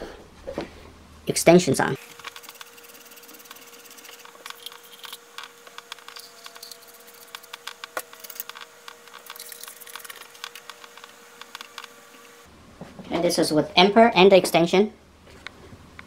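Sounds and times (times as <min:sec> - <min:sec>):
faint steady hum: 0:00.0 - 0:16.0
small metal clicks and scraping: 0:02.2 - 0:12.3.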